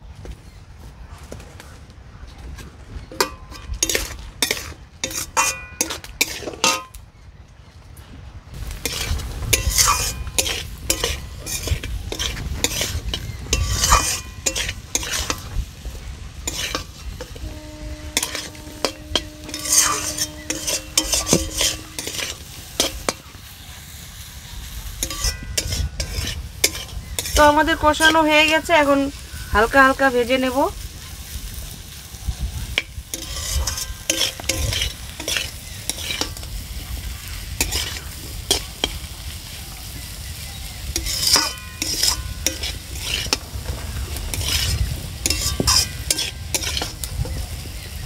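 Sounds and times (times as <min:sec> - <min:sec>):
spatula scraping and knocking pan: 0:03.0 - 0:07.0, 0:08.7 - 0:23.5, 0:24.9 - 0:29.5, 0:32.7 - 0:39.1, 0:40.8 - 0:47.9
food sizzling in a pan: 0:03.1 - 0:06.9, 0:08.6 - 0:48.0.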